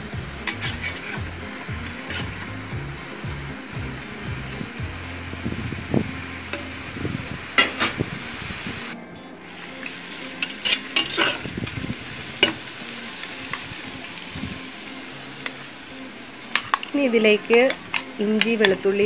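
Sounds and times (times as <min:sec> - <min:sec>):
onions sizzling in hot oil: 0:00.0 - 0:19.0
spatula scraping metal pot: 0:00.4 - 0:02.5, 0:10.4 - 0:11.5.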